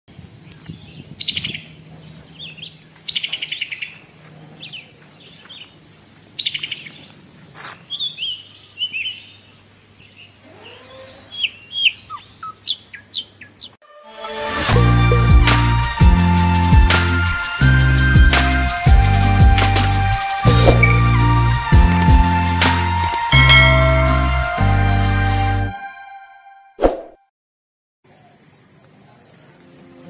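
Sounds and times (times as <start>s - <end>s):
small birds chirping and trilling: 0.1s - 13.8s
loud music: 14.1s - 26.1s.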